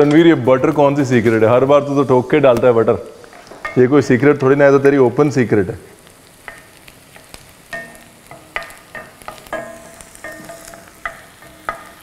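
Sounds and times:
onions sizzling in pan: 0.0s - 12.0s
spatula knocking against pan: 7.7s - 12.0s.

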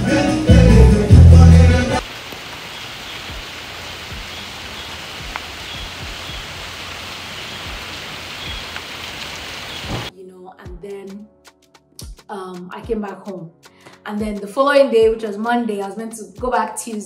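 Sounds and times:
rain hissing: 1.8s - 10.1s.

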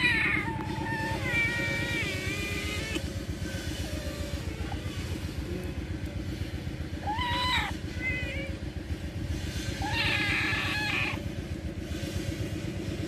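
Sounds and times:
kittens mewing: 0.0s - 6.0s, 6.8s - 11.4s
low rumble: 0.0s - 13.0s.

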